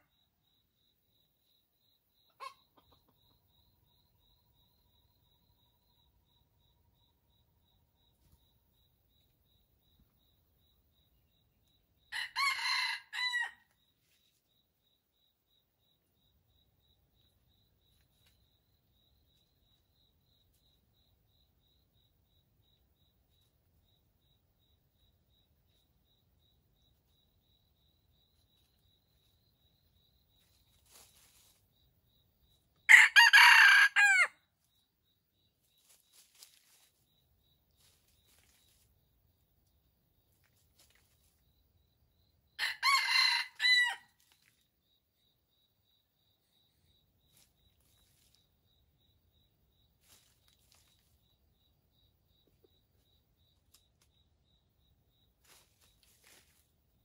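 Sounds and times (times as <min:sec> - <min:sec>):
rooster crowing: 0:12.1 - 0:13.7, 0:32.9 - 0:34.4, 0:42.6 - 0:44.1.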